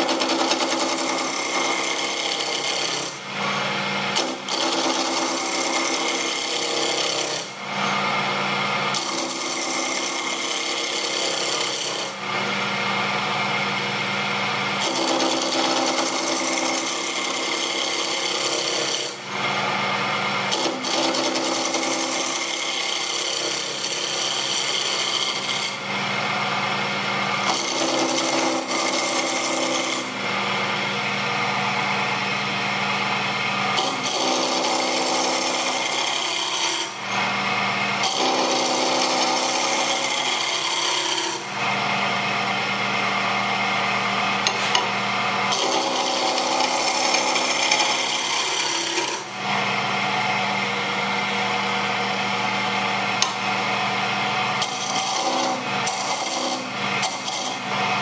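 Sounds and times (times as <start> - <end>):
turning tool scraping wood: 14.8 - 19.6, 22.1 - 25.8, 33.7 - 37.0, 38.0 - 41.5, 45.5 - 49.3, 54.6 - 57.7.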